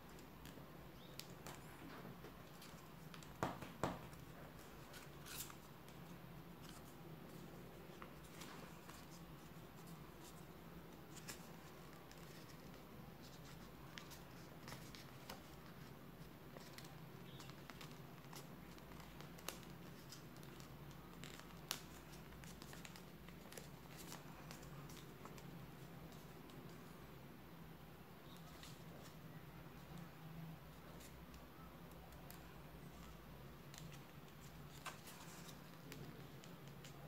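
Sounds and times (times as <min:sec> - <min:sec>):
paper being folded and creased: 0:16.5 - 0:26.8, 0:32.0 - 0:37.0.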